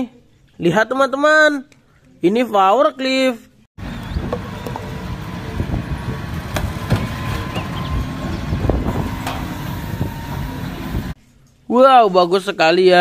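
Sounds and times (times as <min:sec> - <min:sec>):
forklift engine rumbling: 0:03.8 - 0:11.2
knocks and clanks of load: 0:06.4 - 0:10.6.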